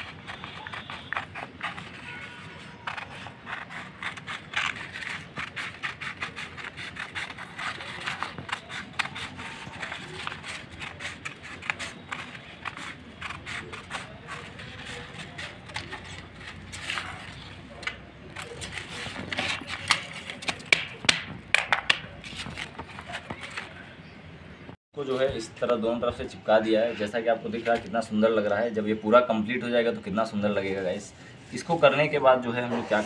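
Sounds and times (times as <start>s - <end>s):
scissors snipping paper: 0.0s - 23.8s
paper rustling: 0.0s - 24.0s.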